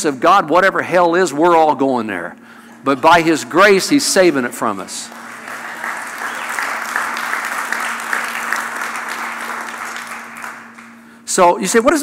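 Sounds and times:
congregation applauding: 2.8 - 11.2.

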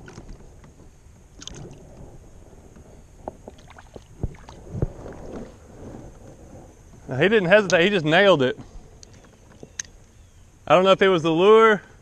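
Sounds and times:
fish splashing into water: 1.4 - 1.8.

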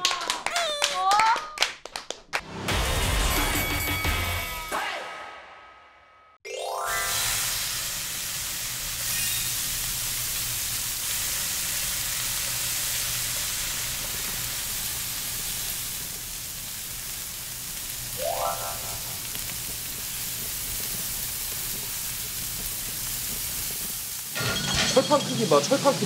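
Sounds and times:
meat sizzling on griddle: 6.9 - 26.0.

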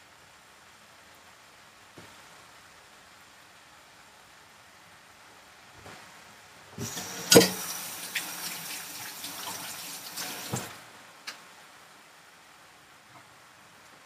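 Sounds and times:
water running from a tap: 6.8 - 10.8.

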